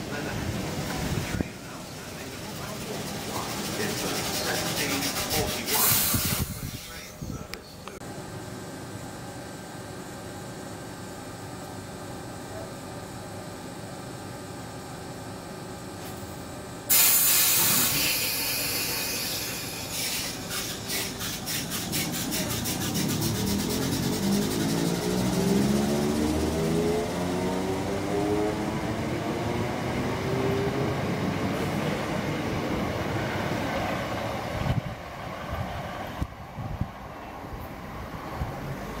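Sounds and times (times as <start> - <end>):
loud hiss of air: 2.5 - 7.2, 16.9 - 24.8
traction motor whine rising: 22.3 - 31.8.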